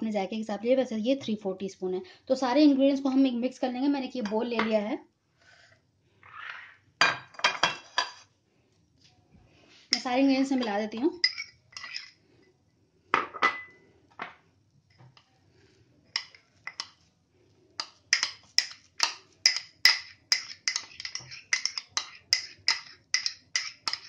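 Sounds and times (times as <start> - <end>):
spoon scraping and tapping metal cup: 9.9 - 12.2, 16.1 - 17.0, 17.8 - 24.0.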